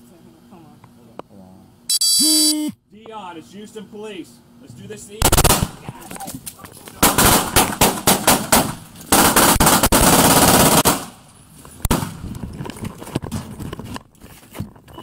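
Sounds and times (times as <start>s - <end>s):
rapid gunfire: 5.2s - 5.8s, 7.0s - 11.2s.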